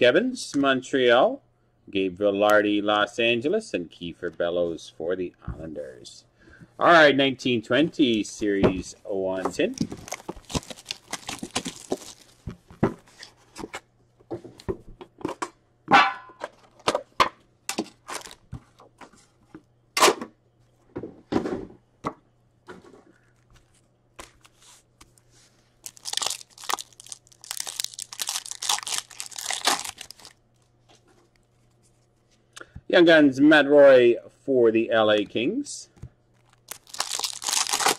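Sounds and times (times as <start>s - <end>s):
wrapper torn and crinkled: 9.8s - 12.4s, 18.0s - 18.4s, 25.8s - 30.4s, 36.4s - 37.9s.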